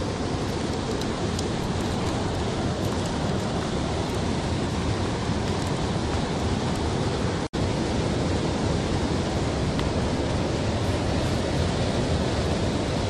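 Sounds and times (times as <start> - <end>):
river water rushing over rocks: 0.0 - 13.0.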